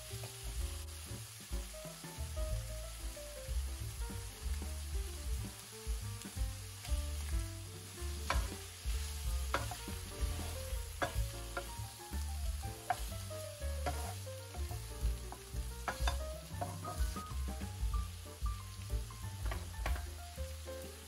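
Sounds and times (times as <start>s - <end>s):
shrimp sizzling in a pan: 0.0s - 21.0s
wooden spoon stirring: 6.2s - 18.2s.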